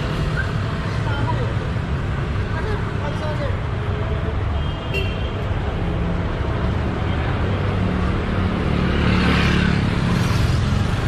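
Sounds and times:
traffic engine drone: 0:00.0 - 0:11.0
motorcycle passing: 0:07.7 - 0:11.0.

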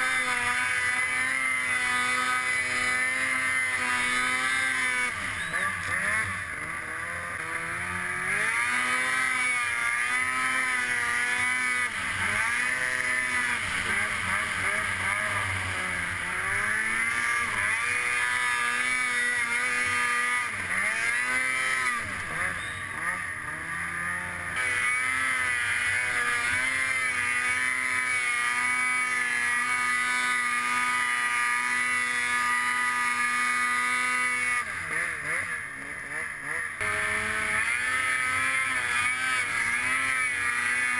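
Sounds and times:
snowmobile engine revving: 0:00.0 - 0:40.9.

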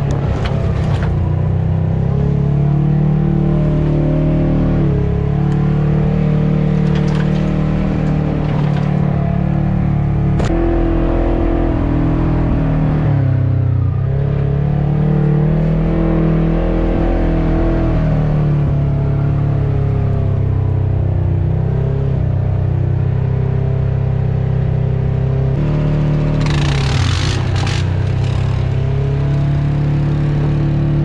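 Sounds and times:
utility vehicle engine revving: 0:00.0 - 0:31.0.

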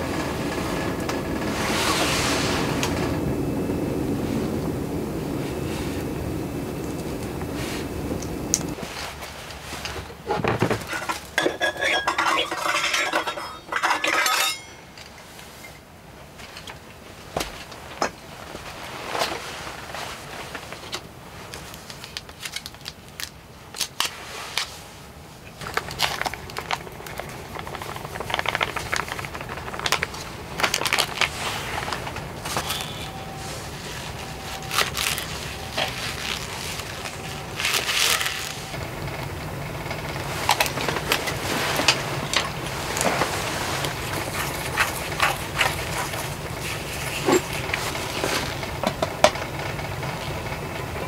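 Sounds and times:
steady hiss: 0:00.0 - 0:11.4
metal bowls and utensils clinking: 0:10.8 - 0:15.2, 0:44.1 - 0:47.7
packaging crinkling: 0:18.5 - 0:24.7, 0:25.6 - 0:38.8, 0:40.3 - 0:49.1.

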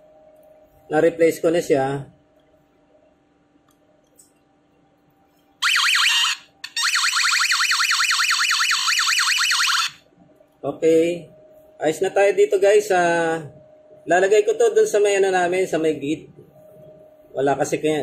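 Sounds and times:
door alarm siren wailing: 0:05.6 - 0:10.0.

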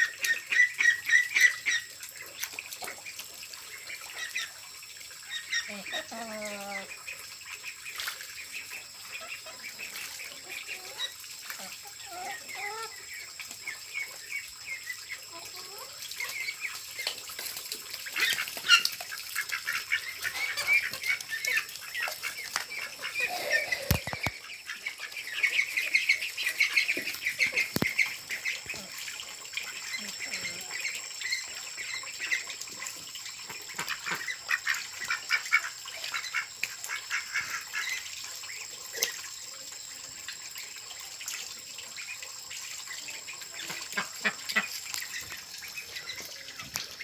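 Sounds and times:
chickens calling: 0:00.0 - 0:02.0, 0:05.3 - 0:17.2, 0:18.0 - 0:38.1, 0:43.2 - 0:47.0
ducks calling: 0:18.0 - 0:29.0.

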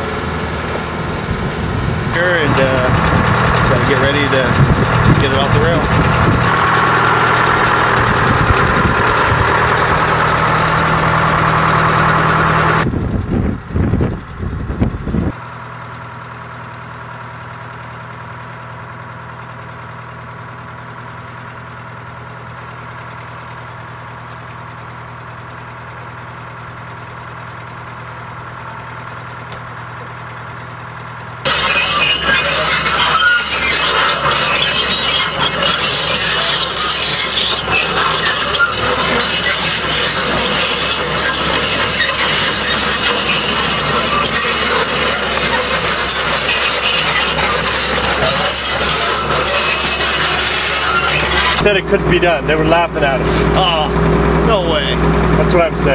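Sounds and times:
heavy equipment engines running: 0:00.0 - 0:55.9.

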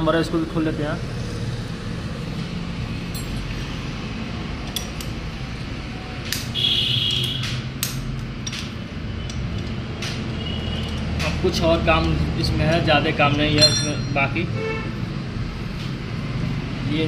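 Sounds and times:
wrench clinking on metal: 0:03.1 - 0:03.5, 0:04.6 - 0:05.2, 0:12.0 - 0:14.3
high metallic ring: 0:13.5 - 0:14.4.

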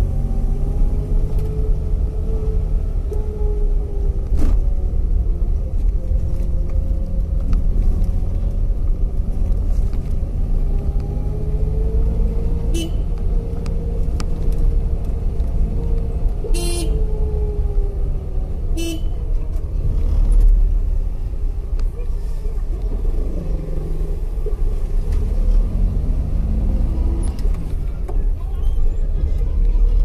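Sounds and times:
engine and road rumble: 0:00.0 - 0:30.0
vehicle horn toot: 0:12.7 - 0:13.1, 0:16.5 - 0:17.0, 0:18.8 - 0:19.2.

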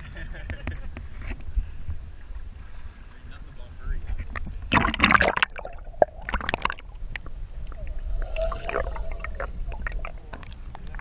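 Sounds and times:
water splashing and gurgling: 0:04.4 - 0:11.0.

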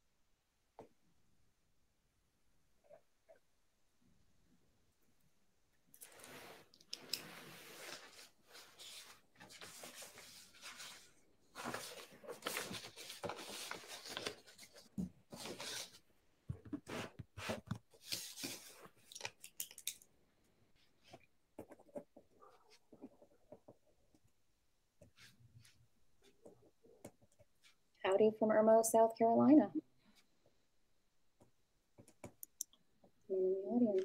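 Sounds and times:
faint rustling and scraping: 0:06.0 - 0:19.2.

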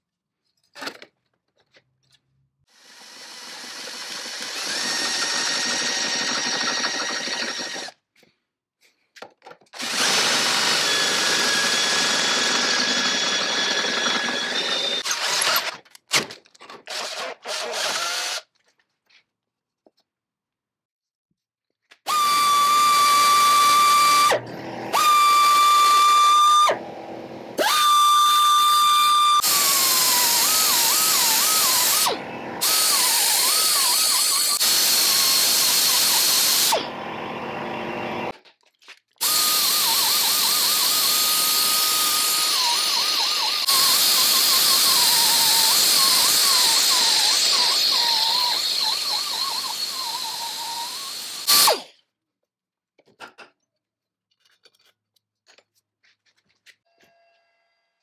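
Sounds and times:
die grinder grinding metal: 0:03.0 - 0:08.0, 0:09.8 - 0:15.8, 0:22.1 - 0:38.4, 0:39.2 - 0:51.9.

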